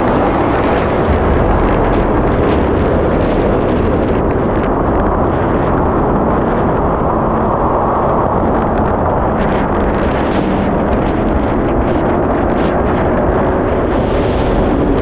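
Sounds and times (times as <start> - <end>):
water rushing: 0.0 - 5.6
jet ski engine running: 0.0 - 6.6
wind on microphone: 0.0 - 15.0.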